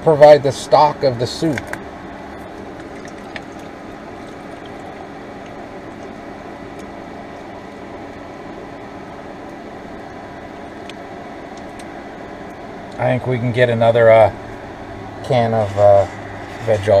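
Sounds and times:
fan hum: 0:00.0 - 0:17.0.

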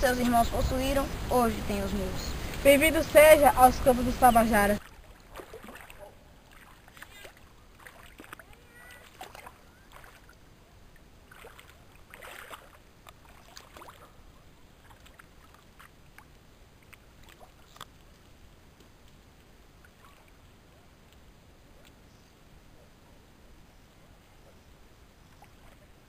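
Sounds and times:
shallow water splashing: 0:00.0 - 0:18.5, 0:19.1 - 0:20.6, 0:25.2 - 0:26.0
low background noise: 0:00.0 - 0:26.0.

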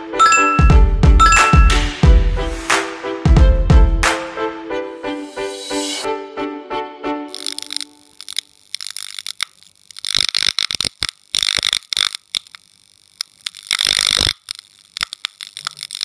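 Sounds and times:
neon sign crackling and buzzing: 0:07.3 - 0:16.0.

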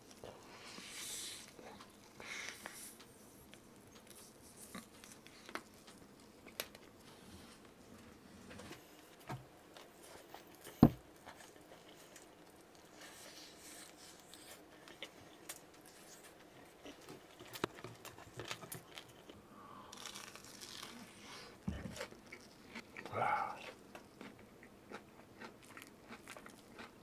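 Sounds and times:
hands crinkling food wrapping: 0:14.8 - 0:21.3.

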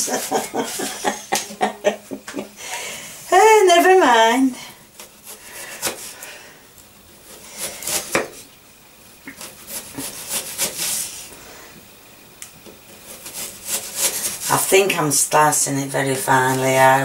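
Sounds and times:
knife slicing onion on wooden board: 0:05.0 - 0:06.2, 0:07.2 - 0:08.4, 0:09.3 - 0:11.0, 0:12.9 - 0:14.5.

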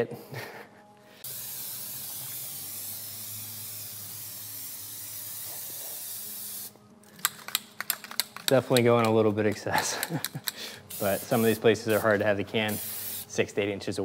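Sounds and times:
aerosol spray hissing: 0:01.2 - 0:06.8, 0:10.8 - 0:13.4.

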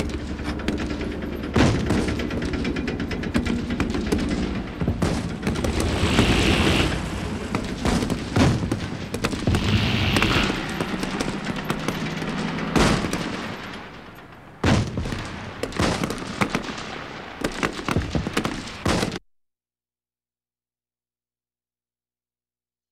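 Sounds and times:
low booms: 0:00.0 - 0:16.3
rapid gunfire: 0:00.0 - 0:19.2.

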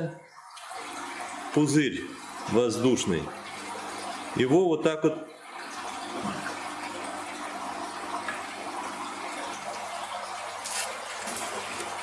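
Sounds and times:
aquarium water bubbling and churning: 0:00.0 - 0:12.0
hand stirring water: 0:10.5 - 0:12.0.

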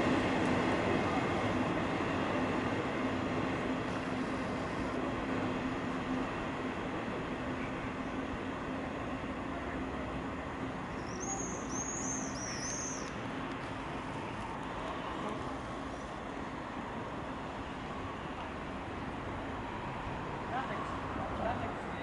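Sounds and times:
freight train rumbling: 0:00.0 - 0:22.0
bird chirping: 0:11.0 - 0:13.1.

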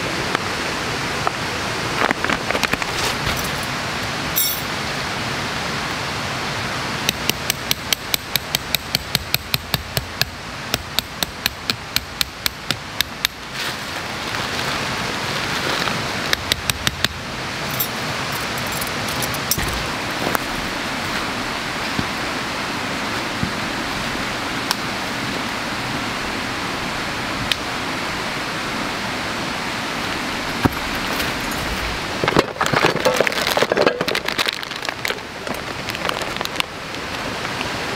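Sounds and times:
camping gear clattering: 0:02.8 - 0:03.7, 0:17.7 - 0:20.5
hammer tapping metal tent stake: 0:07.1 - 0:13.4.

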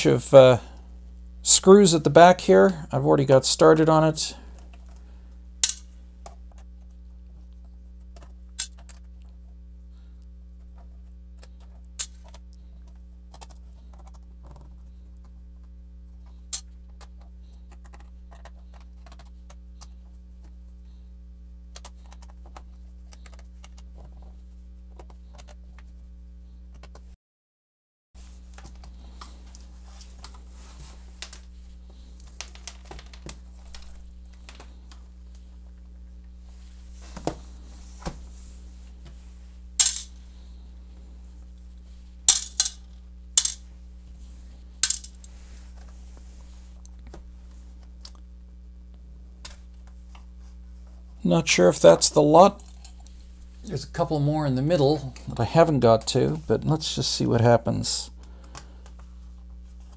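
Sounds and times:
steady electrical hum: 0:00.0 - 0:27.2, 0:28.2 - 0:59.9.

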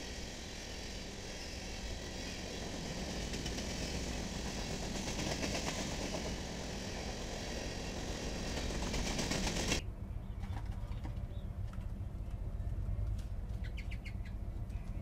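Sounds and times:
freight train rolling past: 0:00.0 - 0:09.8.

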